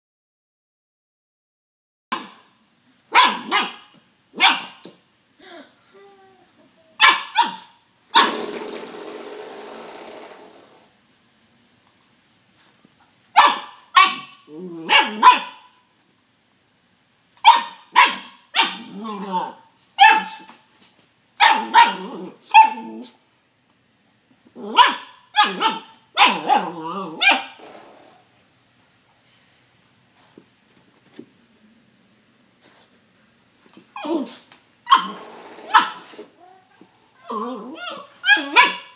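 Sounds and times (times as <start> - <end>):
puppy barking: 2.1 - 2.5, 3.1 - 4.8, 7.0 - 8.4, 13.4 - 15.7, 17.4 - 18.9, 20.0 - 20.5, 21.4 - 22.9, 24.6 - 27.6, 34.9 - 36.1, 37.8 - 38.9
puppy whining: 33.9 - 38.9.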